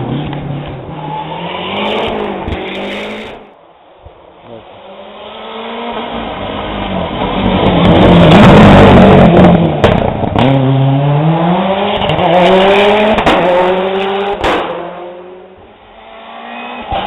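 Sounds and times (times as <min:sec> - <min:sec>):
rally car accelerating past: 0:04.9 - 0:17.0.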